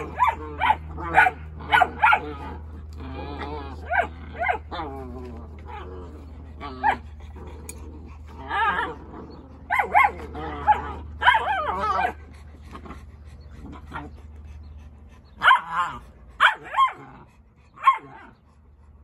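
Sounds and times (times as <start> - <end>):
puppies yipping and whining: 0.0 - 19.0.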